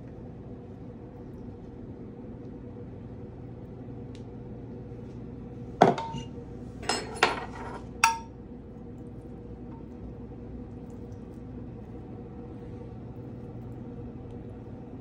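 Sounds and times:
steady low hum: 0.0 - 15.0
dishware clinking on glass dish: 5.8 - 8.3.

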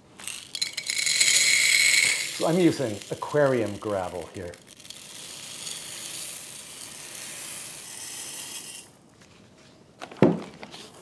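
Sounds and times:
gravel pouring into a bowl: 0.2 - 8.9.

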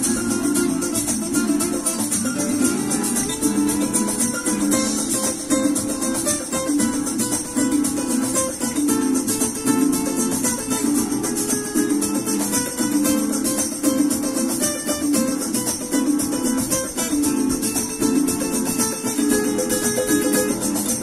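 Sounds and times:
acoustic guitar fingerpicking: 0.0 - 21.0
flamenco backing track: 0.0 - 21.0.

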